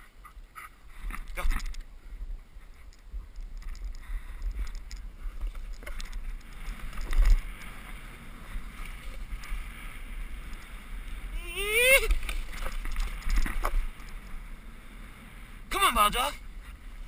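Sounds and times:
wind rumbling on microphone: 0:00.0 - 0:17.0
snowboard sliding over snow: 0:05.0 - 0:17.0.

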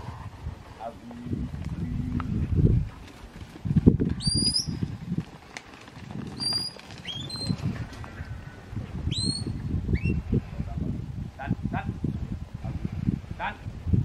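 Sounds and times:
shepherd's whistle: 0:04.2 - 0:04.8, 0:06.4 - 0:07.6, 0:09.1 - 0:10.2.

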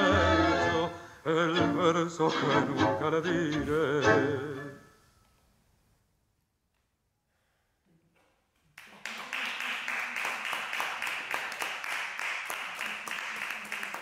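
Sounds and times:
audience applause: 0:08.8 - 0:14.0.

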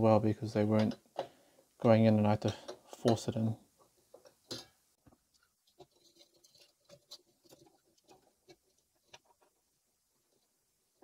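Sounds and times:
parts clicking and scraping: 0:02.4 - 0:10.6.

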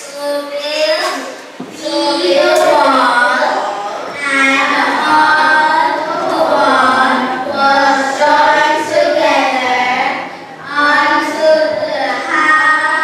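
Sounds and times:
children singing together: 0:00.0 - 0:13.0.

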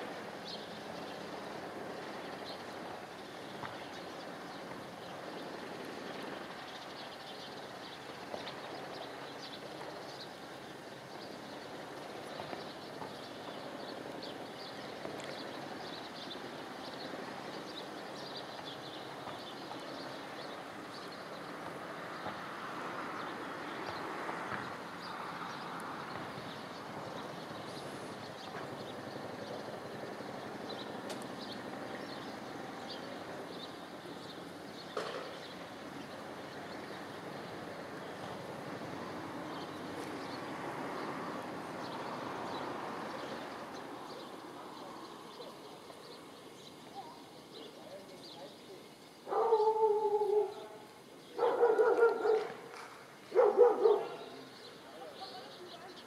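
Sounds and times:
outdoor background noise: 0:00.0 - 0:56.0
faint crackling ticks: 0:15.0 - 0:15.5, 0:31.0 - 0:31.4, 0:51.8 - 0:53.0.

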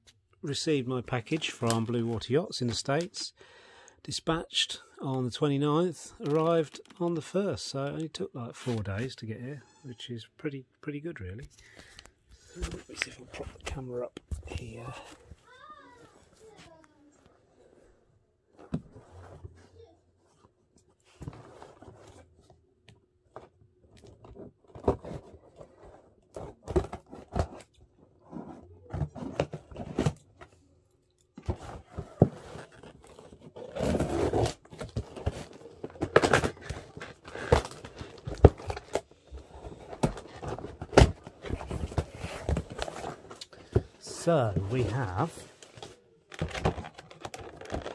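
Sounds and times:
cardboard scraping and tearing: 0:31.5 - 0:43.4, 0:46.5 - 0:47.9.

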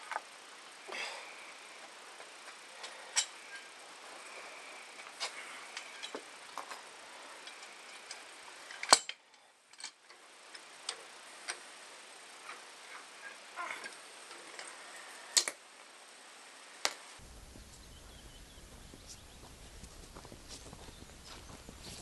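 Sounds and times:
sharp metal click: 0:08.8 - 0:10.0.

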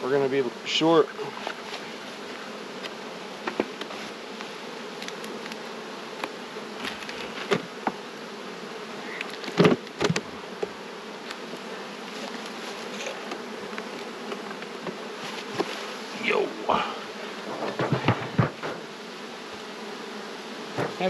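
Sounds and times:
bees buzzing: 0:00.0 - 0:21.0
wooden hive boxes knocking: 0:01.4 - 0:08.1, 0:09.2 - 0:15.8, 0:16.7 - 0:19.6, 0:20.6 - 0:21.0.

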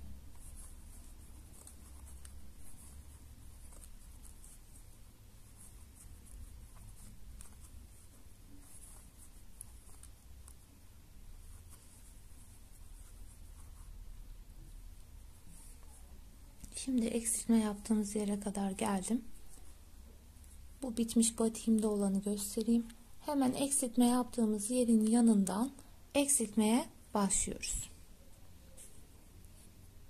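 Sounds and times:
crochet hook scratching yarn: 0:00.0 - 0:23.9
low steady hum: 0:00.0 - 0:30.0.

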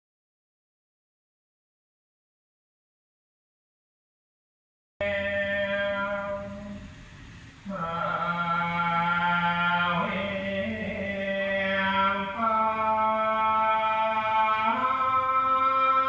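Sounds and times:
man chanting in long held notes: 0:05.0 - 0:16.0.

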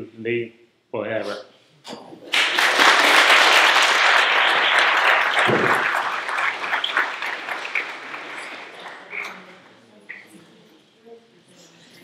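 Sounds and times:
audience applauding: 0:02.3 - 0:09.6.

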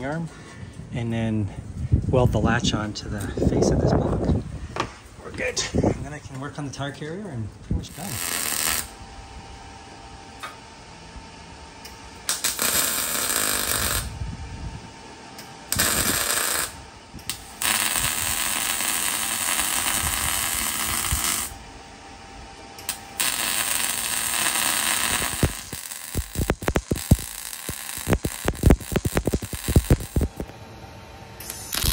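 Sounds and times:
welder arc crackling: 0:07.8 - 0:09.0, 0:11.8 - 0:14.3, 0:15.4 - 0:21.6, 0:22.8 - 0:30.6, 0:31.4 - 0:31.9.

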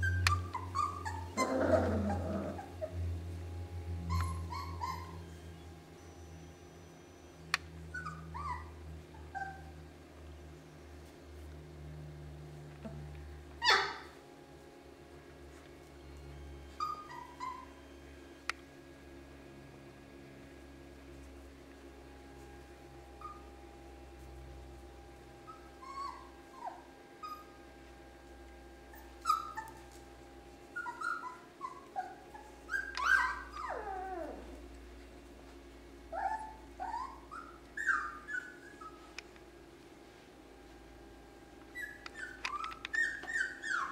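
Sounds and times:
puppy whimpering: 0:00.0 - 0:03.0, 0:04.0 - 0:05.4, 0:07.9 - 0:09.8, 0:13.6 - 0:14.2, 0:16.8 - 0:17.8, 0:23.2 - 0:23.5, 0:25.5 - 0:27.5, 0:28.9 - 0:29.9, 0:30.7 - 0:34.7, 0:36.1 - 0:39.2, 0:41.7 - 0:43.9
puppy yelping: 0:00.0 - 0:03.0, 0:04.0 - 0:05.3, 0:07.9 - 0:09.7, 0:13.6 - 0:14.2, 0:16.8 - 0:17.8, 0:23.2 - 0:23.5, 0:25.5 - 0:27.5, 0:28.9 - 0:29.9, 0:30.7 - 0:34.6, 0:36.1 - 0:39.1, 0:41.7 - 0:43.9
puppy whine falling in pitch: 0:04.0 - 0:05.3, 0:32.7 - 0:34.6, 0:41.8 - 0:43.9.

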